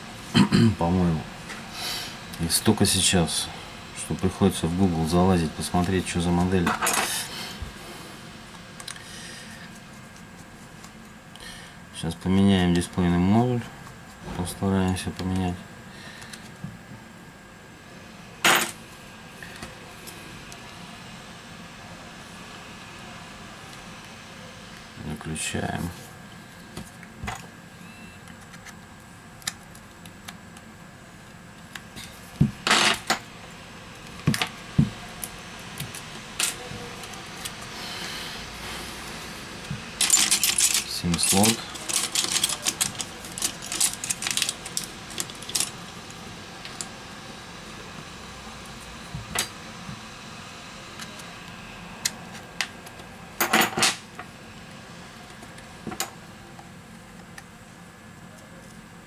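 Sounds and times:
small parts clattering: 40.0 - 45.8.

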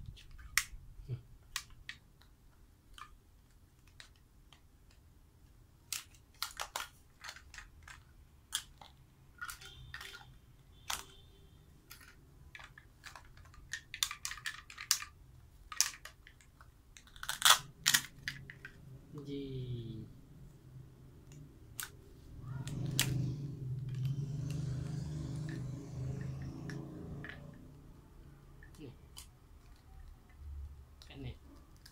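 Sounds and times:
plastic toy pieces clicking: 3.8 - 5.0, 5.9 - 11.1, 11.9 - 18.8, 31.6 - 31.9.

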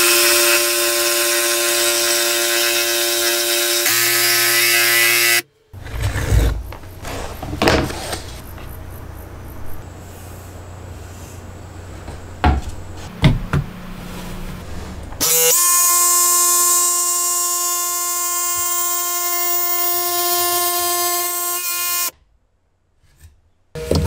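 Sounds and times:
wooden board knocks: 12.4 - 13.7.

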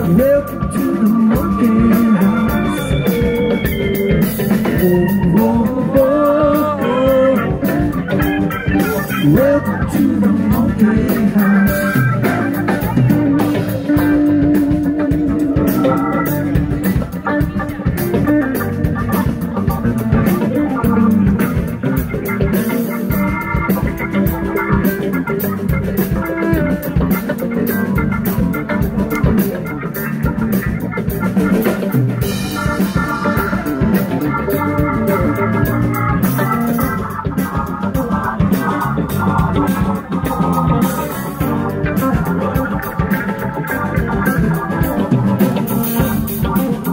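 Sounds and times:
drum kit beat: 0.0 - 46.9
live rock band playing: 0.0 - 46.9.

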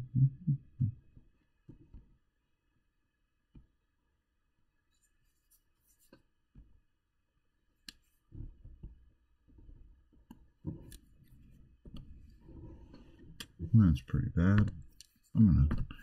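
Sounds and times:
stylus tapping touchscreen: 14.4 - 16.0.

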